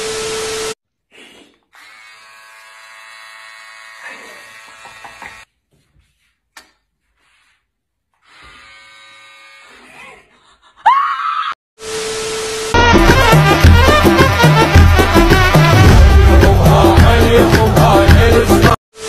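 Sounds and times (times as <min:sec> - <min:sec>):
electric hair clippers buzzing: 0:01.7 - 0:05.5, 0:08.2 - 0:09.8.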